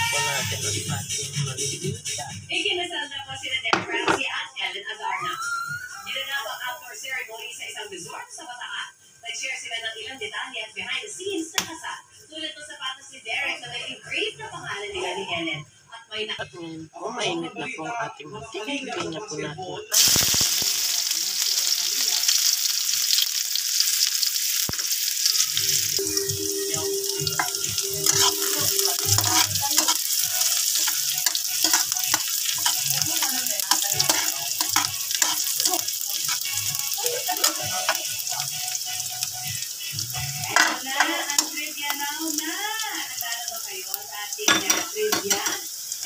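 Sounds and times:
onions sizzling in hot oil: 0:06.0 - 0:08.7, 0:19.9 - 0:46.0
spoon and spatula scraping pan: 0:26.6 - 0:36.5, 0:40.4 - 0:41.6, 0:44.5 - 0:45.6.

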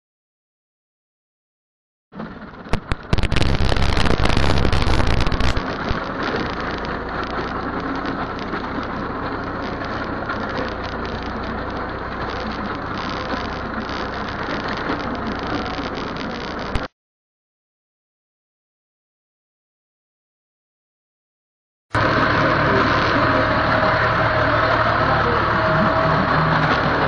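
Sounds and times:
tractor diesel engine: 0:02.2 - 0:16.9, 0:22.0 - 0:27.0
rushing noise: 0:02.6 - 0:07.0, 0:09.8 - 0:16.9.

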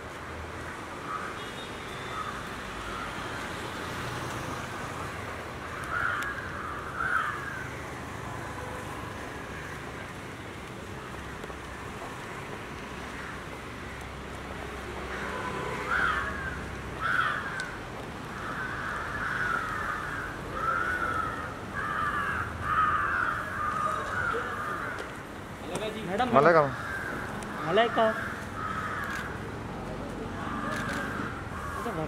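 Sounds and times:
crows cawing: 0:01.0 - 0:03.5, 0:05.0 - 0:08.2, 0:11.1 - 0:14.3, 0:15.1 - 0:29.6, 0:30.3 - 0:32.0.

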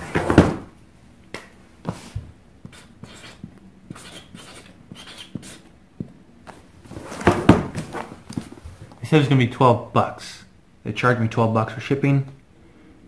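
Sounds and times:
marker scratching on cardboard: 0:02.6 - 0:05.7.

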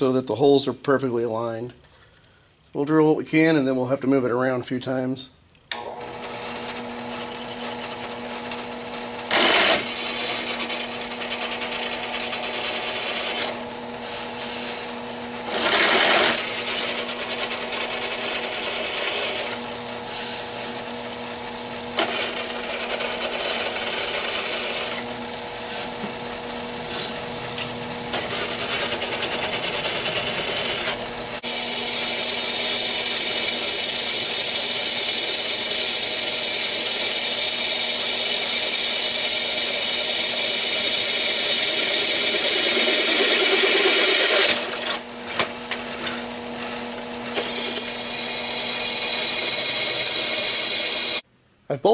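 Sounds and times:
drill press motor hum: 0:05.7 - 0:51.2
drill bit cutting steel: 0:08.8 - 0:26.0, 0:28.1 - 0:45.1, 0:47.3 - 0:51.2.

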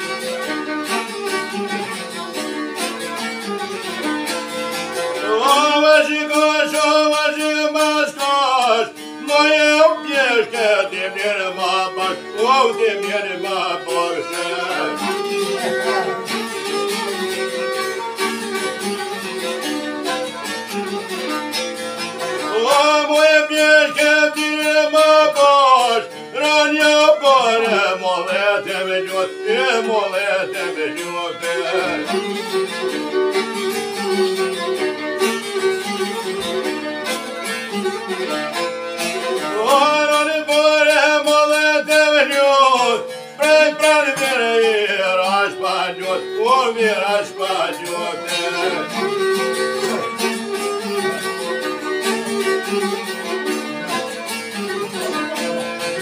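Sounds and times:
plucked long-necked lute: 0:00.0 - 0:56.0
violin: 0:00.0 - 0:56.0
man singing held notes: 0:22.5 - 0:32.1, 0:39.5 - 0:48.9.

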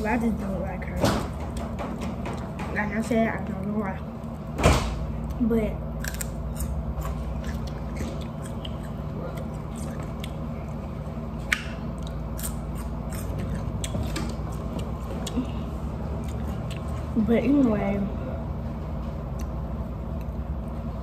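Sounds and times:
steady low hum: 0:00.0 - 0:21.0
person chewing food: 0:06.0 - 0:17.2, 0:19.2 - 0:20.9
wet mouth clicks: 0:16.2 - 0:17.1.

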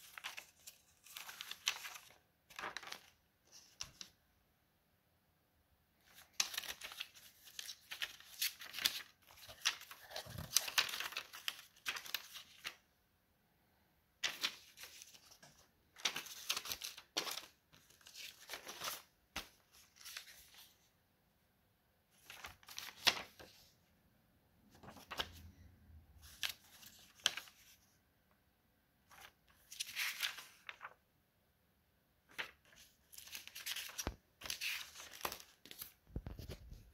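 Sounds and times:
notebook pages rustling: 0:00.0 - 0:04.2, 0:06.0 - 0:12.8, 0:14.2 - 0:20.9, 0:22.2 - 0:23.8, 0:24.7 - 0:25.5, 0:26.2 - 0:27.9, 0:29.0 - 0:31.0, 0:32.3 - 0:36.9.

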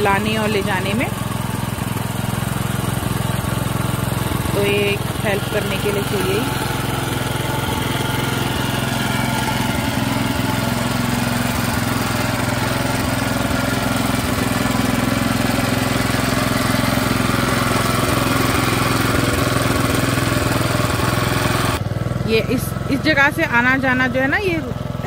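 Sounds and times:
power tiller engine running: 0:00.0 - 0:25.0.

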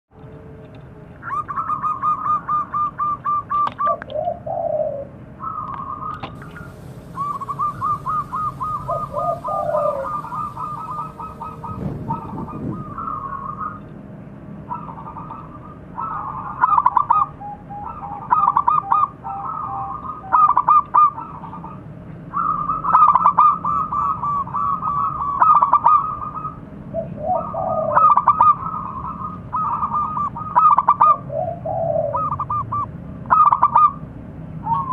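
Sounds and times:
dove cooing: 0:01.2 - 0:13.8, 0:14.7 - 0:34.0
short low dove notes: 0:06.4 - 0:13.4.

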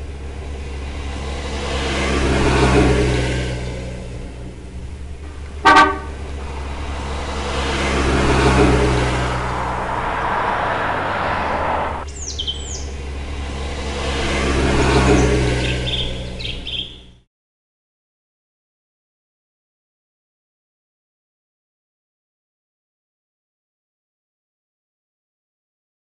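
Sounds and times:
cars passing: 0:00.0 - 0:17.2
low traffic hum: 0:00.0 - 0:17.3
car horn toot: 0:05.3 - 0:06.4
bird chirps: 0:12.1 - 0:13.0, 0:15.1 - 0:17.2.

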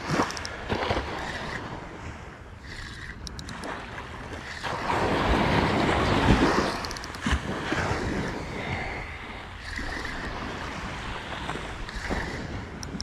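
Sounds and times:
wind on microphone: 0:00.0 - 0:13.0
faint clicks: 0:02.6 - 0:03.7, 0:06.7 - 0:07.3, 0:11.8 - 0:13.0
surf washing onto beach: 0:03.7 - 0:09.1
spinning reel cranking: 0:09.6 - 0:10.3.

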